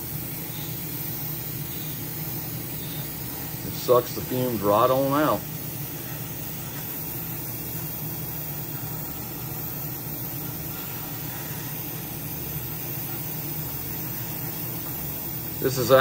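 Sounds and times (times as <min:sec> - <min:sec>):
airbrush air hiss: 0:00.0 - 0:16.0
exhaust fan hum and hiss: 0:00.0 - 0:16.0.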